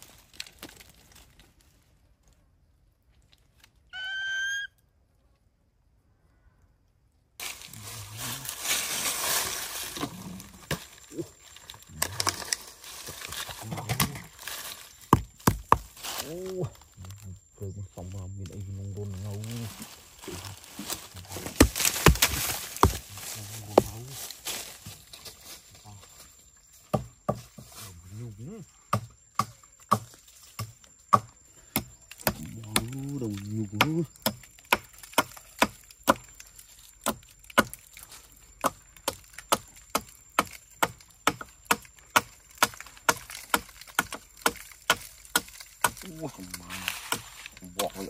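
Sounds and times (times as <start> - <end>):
dry leaves rustling: 0.0 - 3.9, 7.4 - 28.3, 42.0 - 48.0
hatchet chopping tree trunk: 15.0 - 16.1, 20.9 - 23.1, 26.9 - 27.6, 28.9 - 38.0, 38.6 - 48.0.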